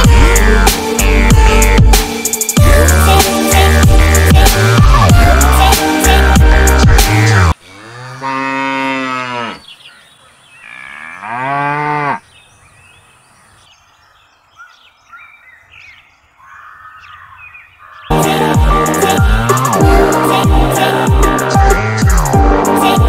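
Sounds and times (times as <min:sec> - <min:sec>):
cow mooing: 0:07.7 - 0:09.7, 0:10.6 - 0:12.2.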